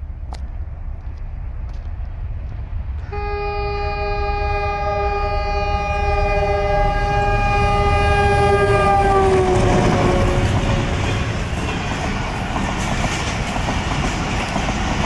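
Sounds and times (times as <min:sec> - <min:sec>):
train engine rumble: 0:00.0 - 0:15.0
locomotive air horn blast: 0:03.0 - 0:11.0.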